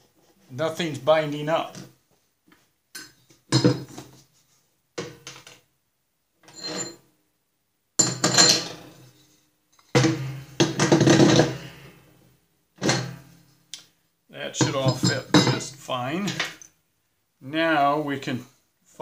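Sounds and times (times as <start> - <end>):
metal clanks and scrapes: 6.4 - 7.0, 8.0 - 9.2, 14.6 - 15.7.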